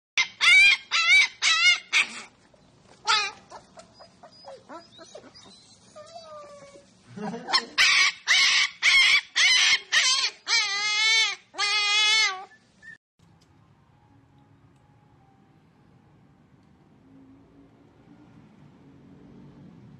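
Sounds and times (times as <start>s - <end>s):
puppy yelping: 0.2s - 2.4s, 3.0s - 6.8s, 7.4s - 13.0s
puppy howling: 7.6s - 12.6s.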